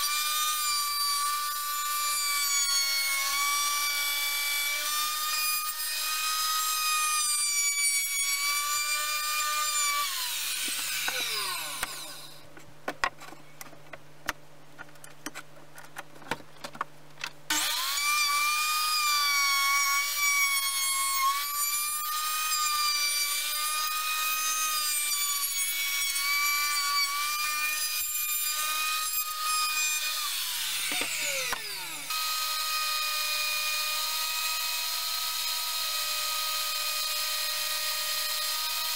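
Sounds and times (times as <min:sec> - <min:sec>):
electric router whining: 0:10.1 - 0:12.4, 0:17.5 - 0:18.8, 0:30.1 - 0:38.9.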